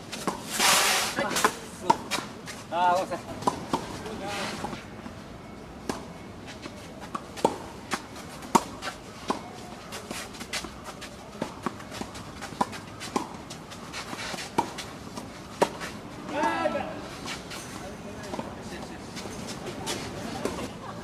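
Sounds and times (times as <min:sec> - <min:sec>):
footsteps shuffling on court: 0:06.4 - 0:20.7
tennis ball hitting racket: 0:07.1 - 0:16.0.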